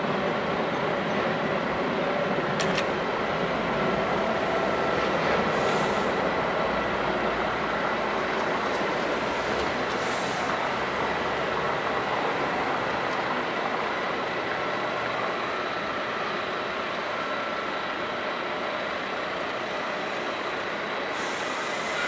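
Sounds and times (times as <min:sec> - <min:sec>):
fire engine pumps droning: 0:00.0 - 0:22.0
brief high hiss: 0:05.5 - 0:06.2, 0:21.1 - 0:22.0.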